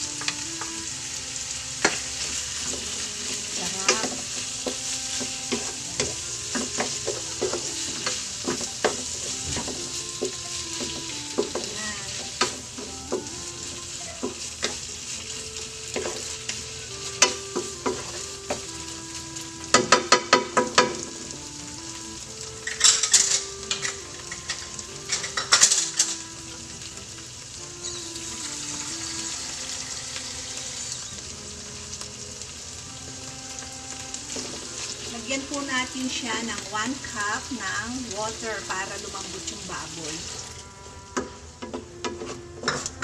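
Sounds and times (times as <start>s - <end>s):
meat sizzling in a frying pan: 0.0s - 43.0s
spatula scraping and tapping pan: 1.8s - 18.8s, 19.6s - 21.3s, 22.6s - 26.7s, 33.6s - 35.7s, 41.1s - 43.0s.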